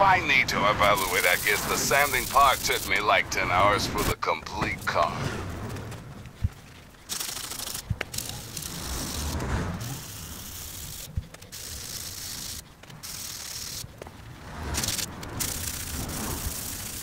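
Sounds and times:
sandpaper scraping painted metal: 0:00.2 - 0:04.1, 0:07.1 - 0:13.9, 0:14.6 - 0:17.0.

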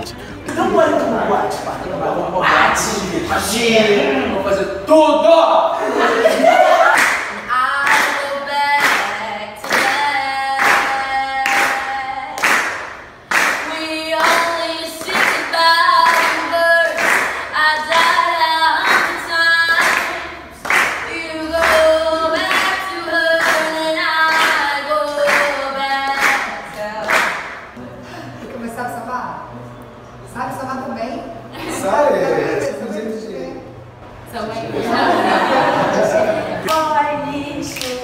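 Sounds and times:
hand claps: 0:06.9 - 0:08.2, 0:08.8 - 0:18.2, 0:18.8 - 0:22.8, 0:23.4 - 0:25.6, 0:26.2 - 0:27.8, 0:36.6 - 0:36.9, 0:37.7 - 0:38.0.

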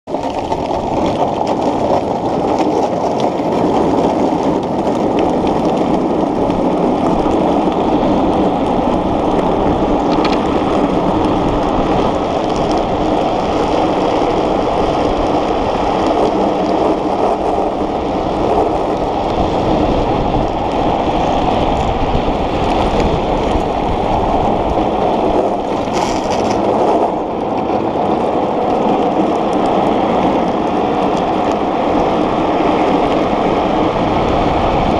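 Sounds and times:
small wheels rolling on asphalt: 0:00.0 - 0:34.9
wind buffeting camera: 0:00.1 - 0:34.9.

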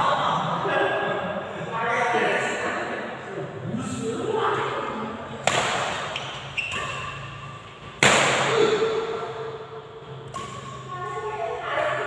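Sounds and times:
racket hitting shuttlecock: 0:05.4 - 0:11.2.

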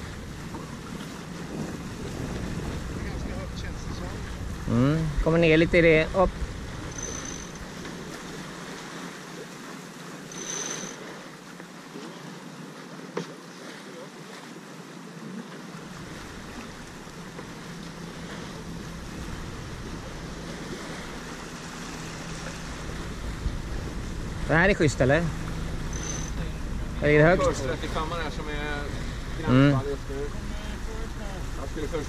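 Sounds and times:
wind buffeting microphone: 0:00.0 - 0:08.9, 0:15.8 - 0:32.0
water rushing past boat: 0:00.0 - 0:32.0.

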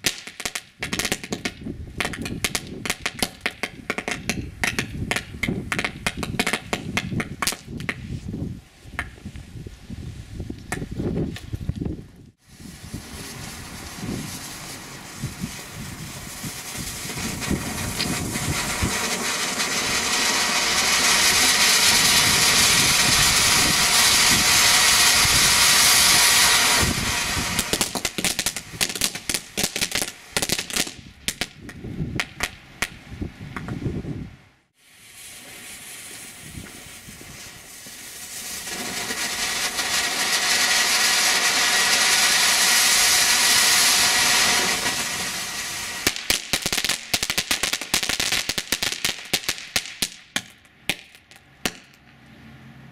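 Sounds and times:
firework crackling: 0:00.0 - 0:08.3, 0:12.4 - 0:33.0, 0:34.8 - 0:52.0
firework fountain hissing: 0:12.4 - 0:31.0, 0:34.8 - 0:50.2.

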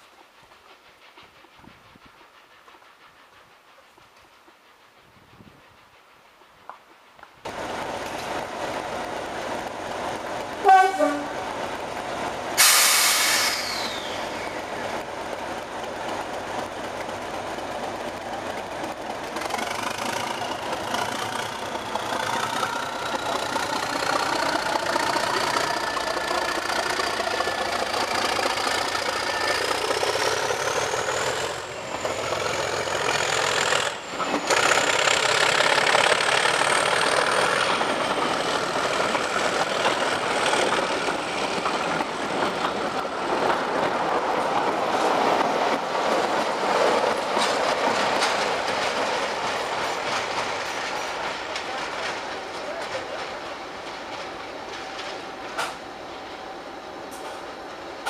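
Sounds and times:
diesel locomotive pulling away: 0:07.5 - 0:58.0
loud horn blast: 0:10.6 - 0:11.3.

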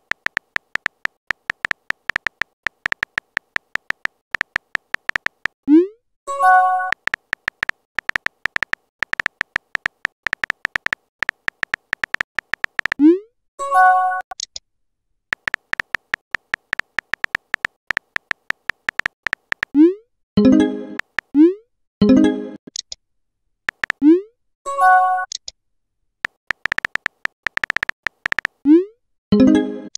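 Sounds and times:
keyboard tap clicks: 0:00.0 - 0:05.6, 0:06.9 - 0:13.0, 0:15.3 - 0:19.8, 0:21.0 - 0:21.3, 0:23.7 - 0:24.0, 0:26.2 - 0:28.6.

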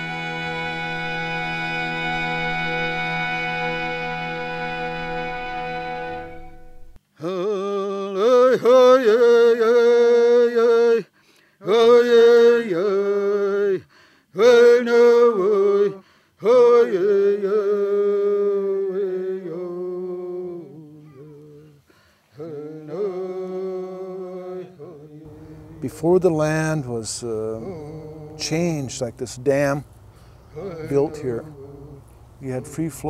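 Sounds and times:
solo voice chanting: 0:07.2 - 0:33.0.

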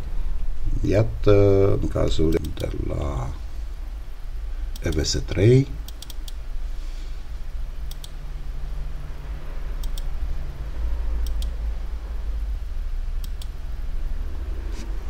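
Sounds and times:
low electrical hum: 0:00.0 - 0:15.0
computer mouse double clicks: 0:11.2 - 0:11.6.

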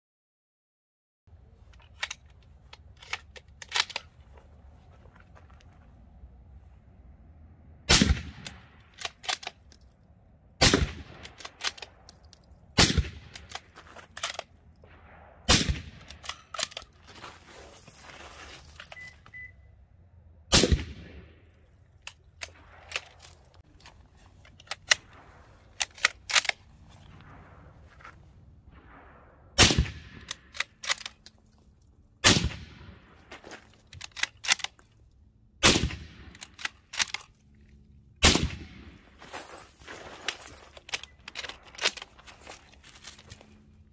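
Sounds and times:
suppressed rifle shots: 0:07.9 - 0:08.7, 0:10.6 - 0:11.9, 0:12.8 - 0:13.5, 0:20.5 - 0:21.4, 0:28.7 - 0:31.0, 0:32.2 - 0:33.1, 0:35.6 - 0:36.7, 0:38.2 - 0:39.1.

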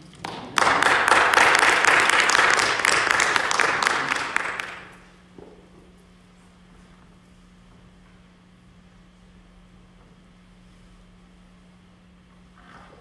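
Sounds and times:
congregation applauding: 0:00.2 - 0:05.1.

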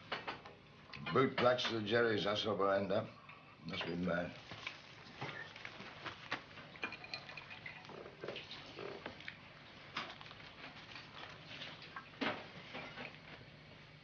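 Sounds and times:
crockery clinking and knocking: 0:00.0 - 0:00.4, 0:06.8 - 0:07.6.

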